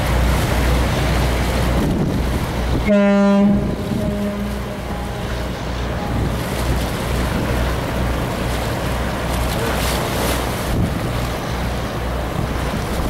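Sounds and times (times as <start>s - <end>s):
ferry wake washing: 0.0s - 13.0s
wind rumbling on microphone: 0.0s - 13.0s
ship whistle blast: 2.8s - 5.3s.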